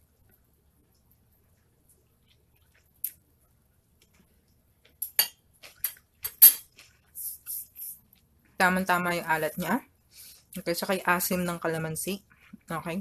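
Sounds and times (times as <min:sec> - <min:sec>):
spoon clinking on a plate: 0:06.2 - 0:06.7.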